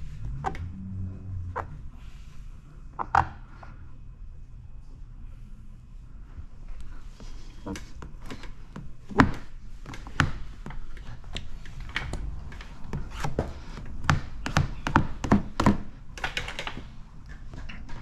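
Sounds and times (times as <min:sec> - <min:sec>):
squeegee tapping and knocking: 0:12.5 - 0:16.6.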